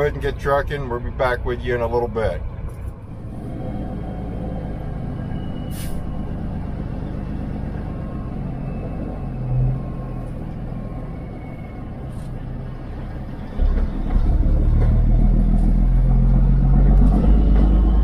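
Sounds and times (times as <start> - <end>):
truck diesel engine running: 0.0 - 18.0.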